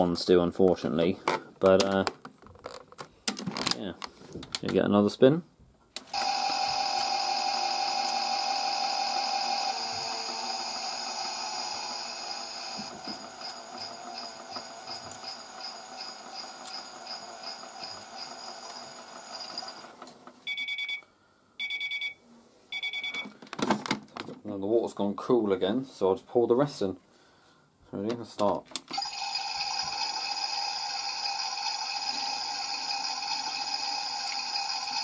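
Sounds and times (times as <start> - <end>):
toy washing machine whirring: 6.1 - 20.0, 28.9 - 35.0
short electronic beeps: 20.5 - 23.3.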